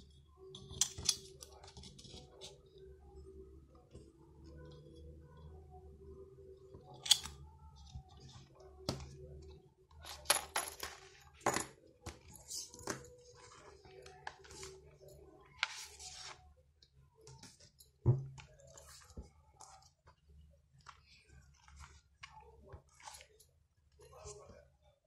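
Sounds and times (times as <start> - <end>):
notebook pages rustling: 15.6 - 16.4.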